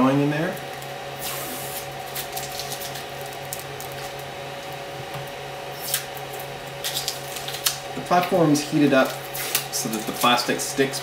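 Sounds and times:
printer fans humming: 0.0s - 11.0s.

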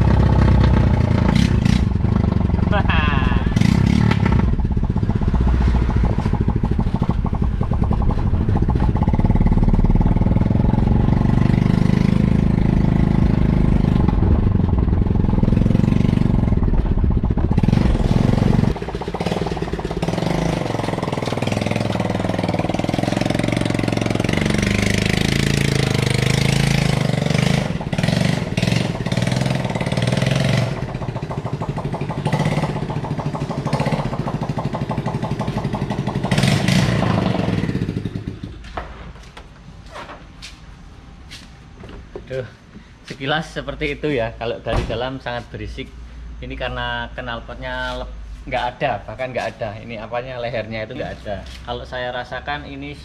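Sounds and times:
loud unmuffled engine revving: 0.0s - 38.4s.

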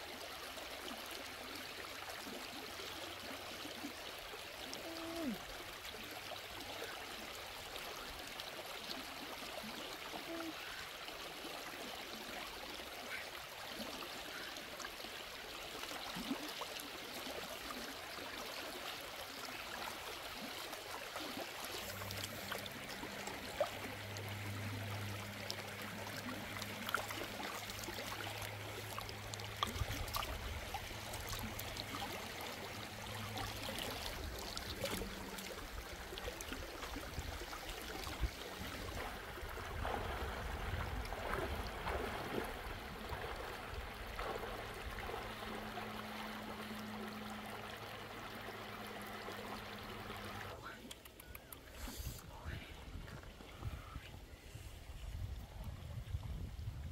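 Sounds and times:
water splashing and sloshing: 0.0s - 56.7s
shallow river flowing: 0.0s - 56.9s
low steady hum: 17.3s - 56.9s.

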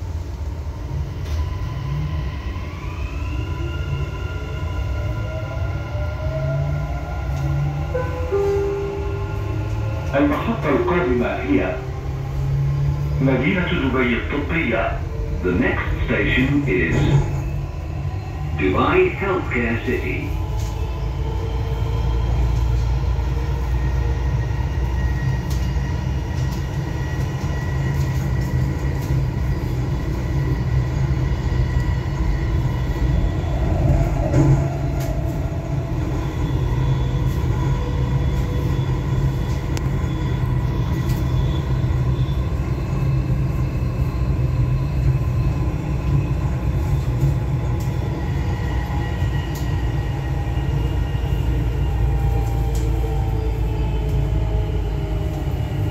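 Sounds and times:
train rumbling on track: 0.0s - 55.9s.

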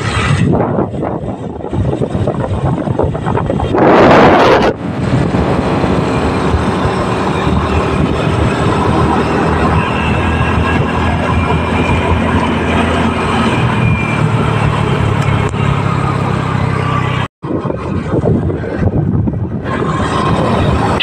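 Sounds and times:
motorcycle engine running: 0.0s - 21.0s
wind buffeting microphone: 0.0s - 21.0s.

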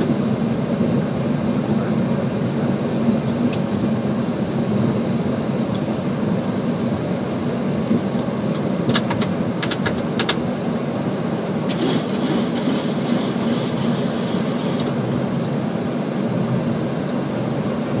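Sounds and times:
aircraft engines idling: 0.0s - 18.0s
hiss: 11.7s - 14.9s.

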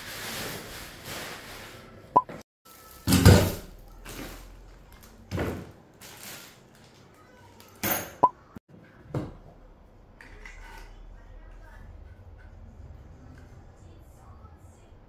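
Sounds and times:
plastic wrapping rustling: 0.0s - 2.0s, 5.9s - 7.6s.

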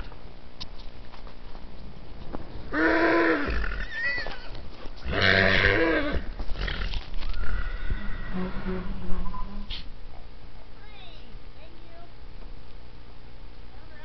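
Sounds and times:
horse whinnying: 2.7s - 9.8s.

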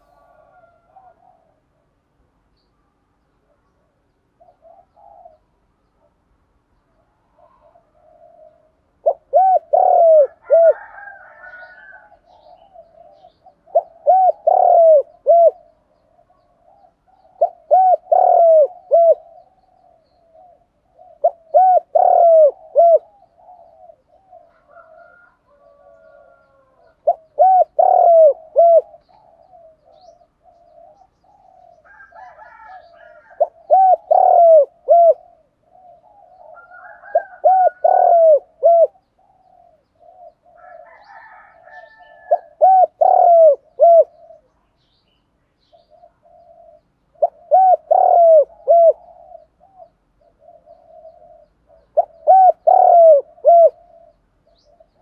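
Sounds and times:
dove cooing: 0.0s - 2.0s, 3.4s - 6.2s, 7.0s - 44.8s, 45.6s - 55.0s.

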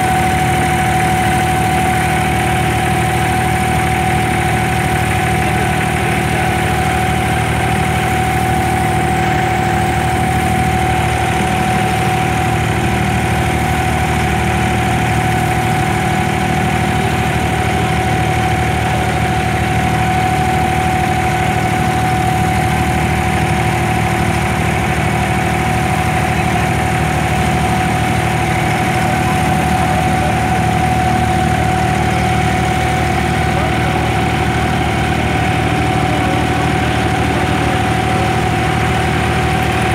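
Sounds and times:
boat diesel engine drone: 0.0s - 39.9s
high hum: 27.7s - 39.9s.

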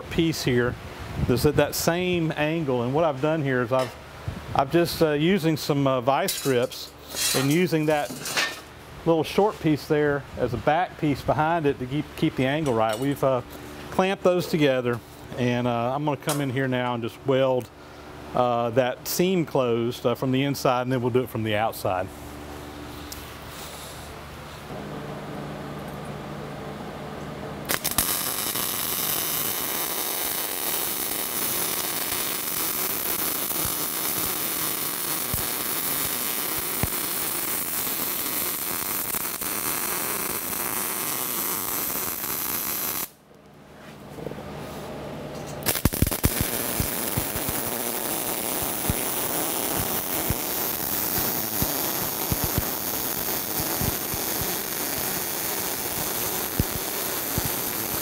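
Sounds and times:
welder arc crackling: 27.6s - 43.2s, 45.6s - 58.0s.

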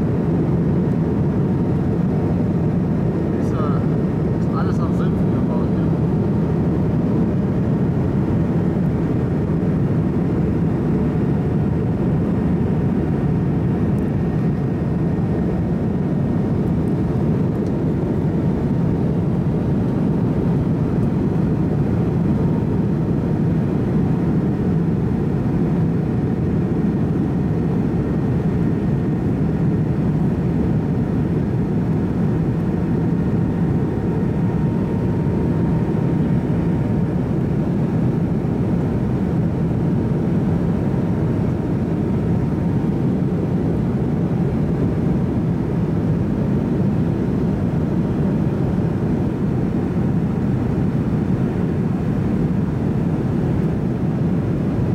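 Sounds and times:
airliner cabin rumble: 0.0s - 54.9s.

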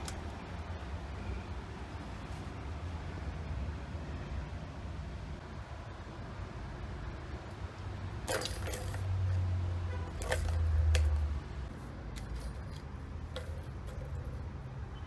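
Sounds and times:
balls rattling in plastic track: 8.2s - 9.4s, 10.0s - 11.3s, 12.1s - 14.6s.

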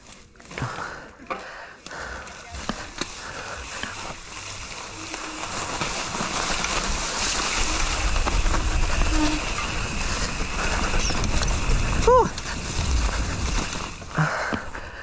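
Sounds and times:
bike tyres on dirt trail: 0.0s - 15.0s
wind on microphone: 7.5s - 14.0s.

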